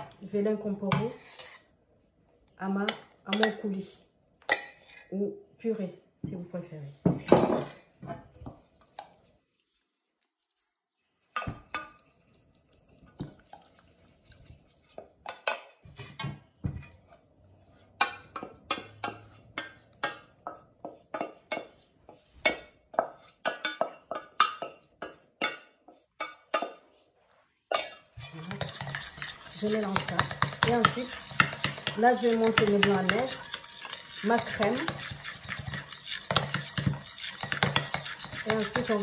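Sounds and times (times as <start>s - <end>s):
wooden spoon scraping steel saucepan: 0.0s - 1.8s, 16.8s - 39.0s.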